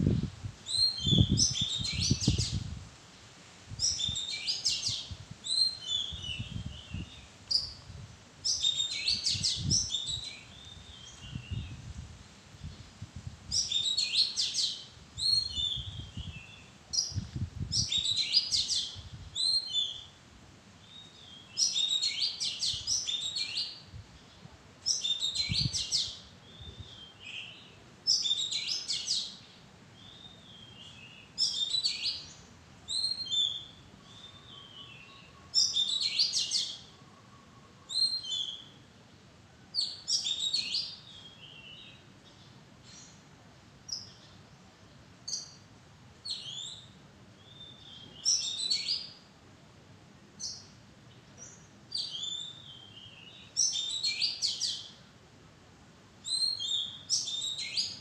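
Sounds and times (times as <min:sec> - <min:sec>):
bird singing whistled phrases: 0:00.7 - 0:02.6, 0:03.8 - 0:07.8, 0:08.5 - 0:11.7, 0:13.6 - 0:17.2, 0:17.8 - 0:20.1, 0:32.9 - 0:36.9, 0:37.9 - 0:38.7, 0:52.0 - 0:54.9, 0:56.3 - 0:58.0.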